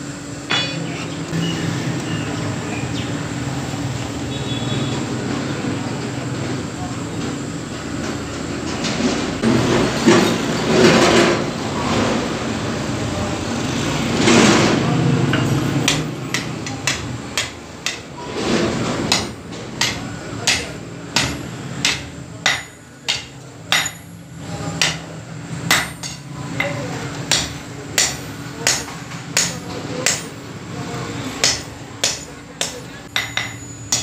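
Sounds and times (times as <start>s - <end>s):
hammer striking metal on anvil: 0.5s - 0.9s, 15.3s - 18.1s, 19.1s - 24.2s, 24.8s - 25.1s, 25.7s - 30.4s, 31.4s - 34.0s.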